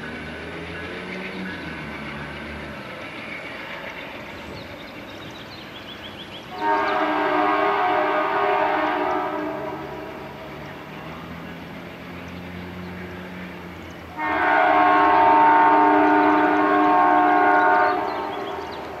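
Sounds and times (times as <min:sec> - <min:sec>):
locomotive engine droning: 0:00.0 - 0:19.0
train air horn: 0:06.5 - 0:10.3, 0:14.1 - 0:18.8.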